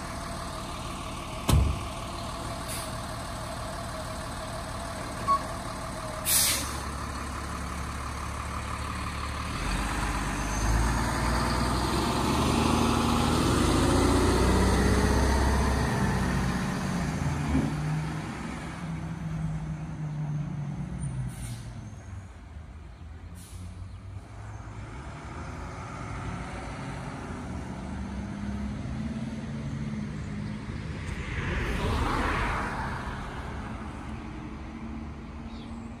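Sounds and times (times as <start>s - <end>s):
truck engine driving away: 0.0s - 36.0s
loud hiss of air: 6.2s - 6.8s.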